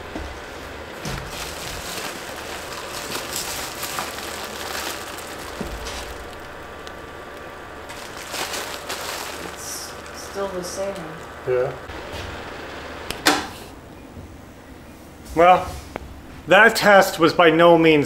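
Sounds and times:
exhaust fan humming: 0:00.0 - 0:18.0
foil duct crinkling: 0:00.9 - 0:11.4.

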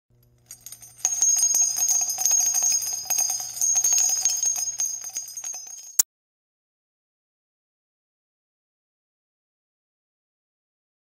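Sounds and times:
small bells jingling: 0:00.4 - 0:06.0
steady high ring: 0:00.5 - 0:06.0.

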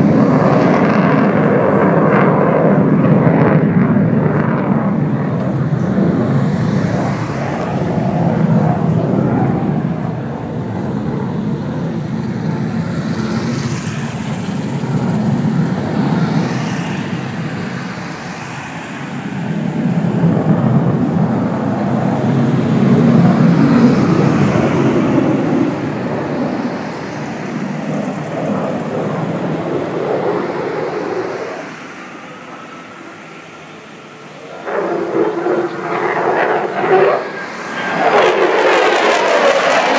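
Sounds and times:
jet rumble flying past: 0:00.0 - 0:39.9.

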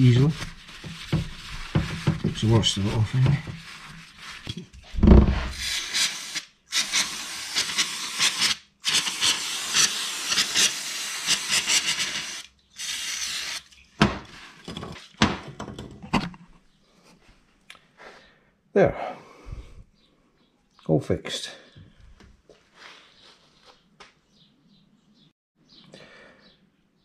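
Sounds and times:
aerosol spray hissing: 0:05.5 - 0:13.6.

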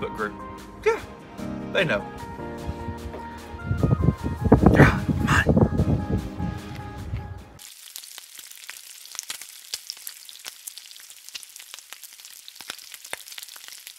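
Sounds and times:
music: 0:00.0 - 0:07.6
bacon sizzling on a griddle: 0:07.6 - 0:13.9.

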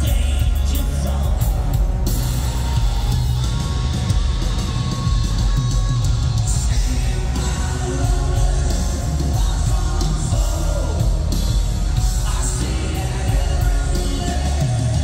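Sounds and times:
man singing into a microphone: 0:00.0 - 0:01.8, 0:06.4 - 0:11.3, 0:12.1 - 0:15.0
live hard rock band: 0:00.0 - 0:15.0.

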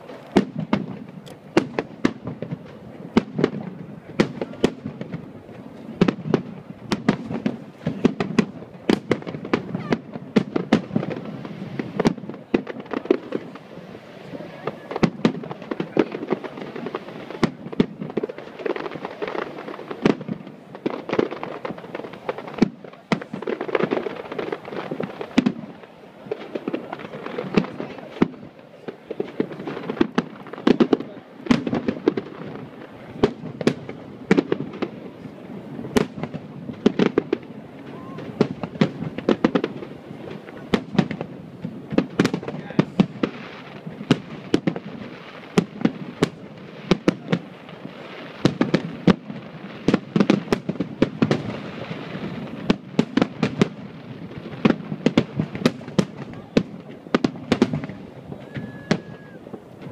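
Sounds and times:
fireworks bangs and crackles: 0:00.0 - 0:59.9.

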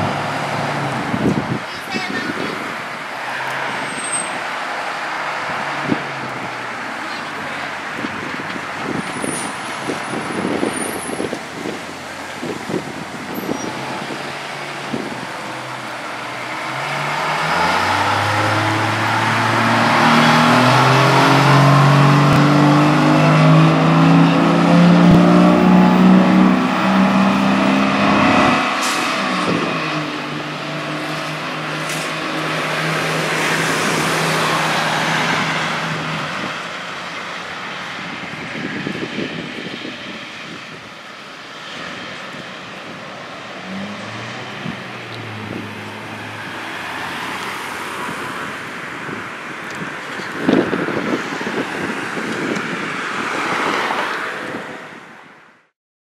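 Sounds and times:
fire engine accelerating: 0:02.6 - 0:40.8.

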